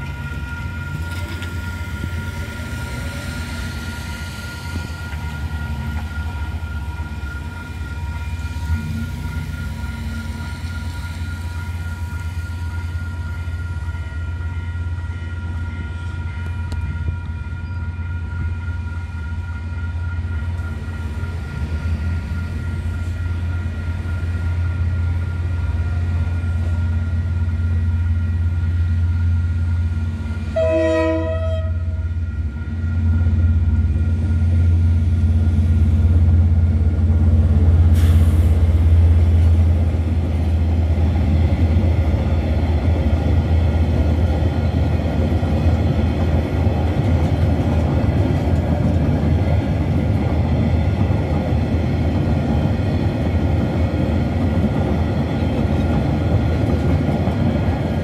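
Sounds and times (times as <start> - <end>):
crossing bells ringing: 0.0 - 26.1
diesel locomotive engine rumble: 0.0 - 58.0
train horn blast: 30.4 - 33.7.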